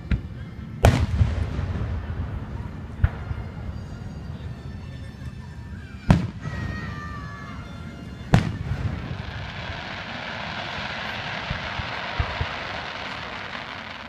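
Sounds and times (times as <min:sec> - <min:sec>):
firework bang: 0:00.8 - 0:03.8, 0:08.3 - 0:14.0
firework crackle: 0:00.8 - 0:04.8, 0:05.5 - 0:14.0
small firework pops: 0:08.3 - 0:14.0.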